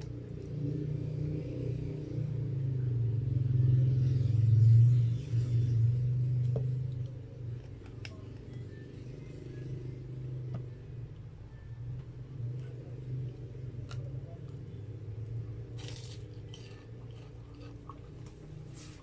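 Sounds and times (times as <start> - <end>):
motor vehicle passing: 0.1 - 19.0.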